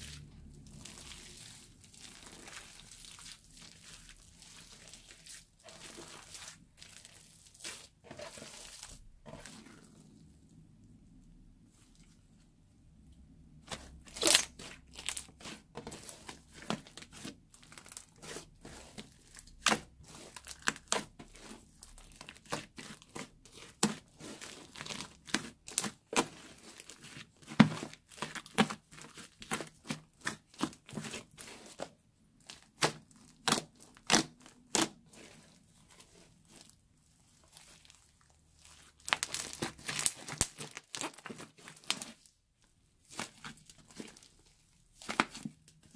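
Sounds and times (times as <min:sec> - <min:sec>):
slime popping and crackling: 0:13.7 - 0:18.5, 0:19.2 - 0:31.8, 0:32.5 - 0:35.3, 0:38.6 - 0:42.3.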